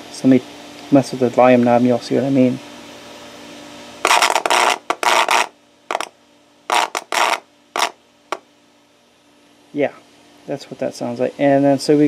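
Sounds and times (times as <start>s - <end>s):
volume knob static scratching: 4.0s - 6.1s, 6.7s - 8.4s.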